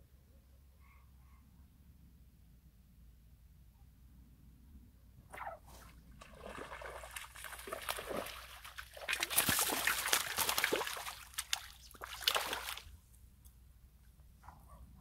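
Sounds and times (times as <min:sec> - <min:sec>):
fish splashing in water: 0:05.8 - 0:12.9.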